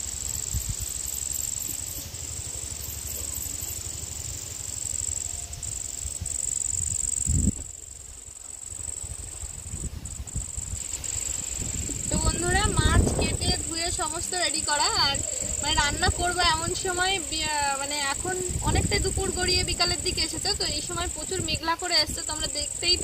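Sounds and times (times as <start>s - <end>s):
insects trilling: 0.0s - 23.0s
low uneven rumble: 8.9s - 23.0s.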